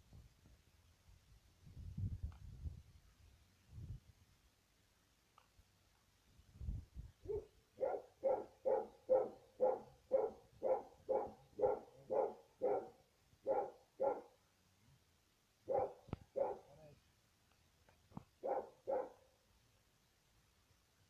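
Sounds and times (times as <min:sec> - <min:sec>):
dog barking: 0:07.3 - 0:14.4, 0:15.7 - 0:16.9, 0:18.4 - 0:19.2.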